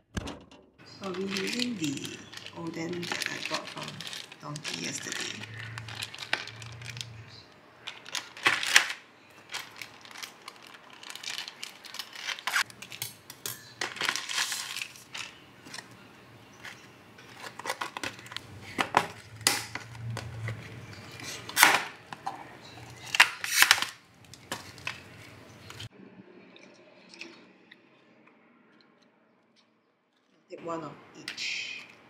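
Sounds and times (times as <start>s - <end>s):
plastic bag crinkling: 0.8s - 16.0s, 16.6s - 25.9s
plastic lid crackling: 0.9s - 13.0s, 16.6s - 25.9s.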